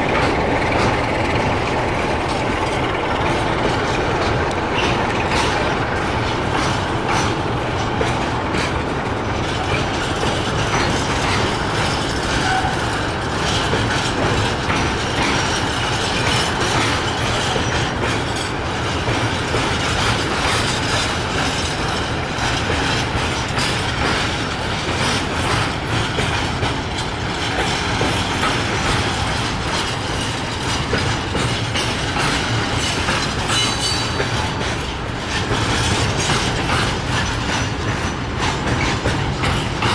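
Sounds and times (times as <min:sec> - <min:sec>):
train rumble: 0:00.0 - 0:39.9
wheels clicking over rail joints: 0:00.0 - 0:39.9
high wheel squeal: 0:12.2 - 0:13.0, 0:32.8 - 0:34.2.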